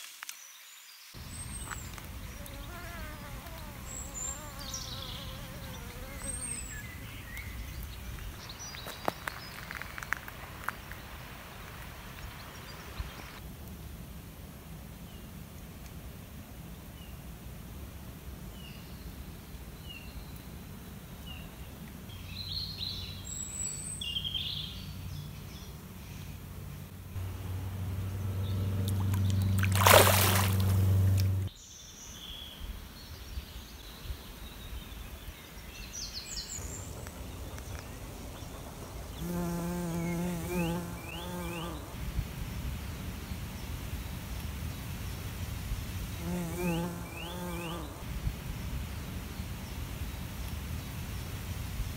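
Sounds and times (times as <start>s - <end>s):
close insect buzz: 1.2s - 8.4s, 38.7s - 42.0s, 46.0s - 48.8s
low buzz: 26.4s - 31.5s
stream water trickling: 27.2s - 31.5s.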